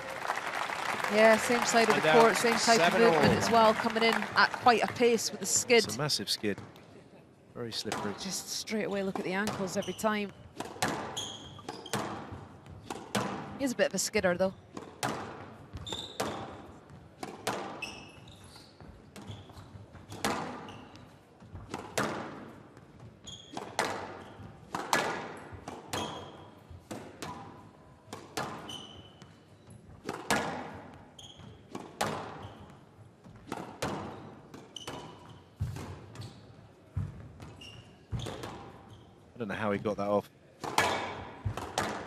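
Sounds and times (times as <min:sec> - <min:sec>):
shoes squeaking on court: 0:08.9 - 0:22.0, 0:22.7 - 0:24.7, 0:25.4 - 0:27.6, 0:28.3 - 0:39.4
squash ball hits echoing: 0:10.6 - 0:13.6, 0:14.7 - 0:17.8, 0:20.1 - 0:20.6, 0:21.6 - 0:22.5, 0:23.6 - 0:28.7, 0:30.0 - 0:30.9, 0:31.7 - 0:32.4, 0:40.6 - 0:42.0.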